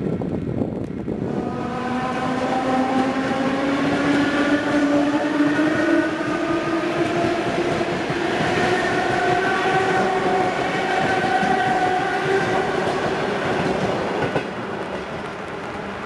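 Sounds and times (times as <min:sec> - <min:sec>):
train wheels rumbling on track: 0:00.0 - 0:16.0
train motor whine rising: 0:01.1 - 0:13.4.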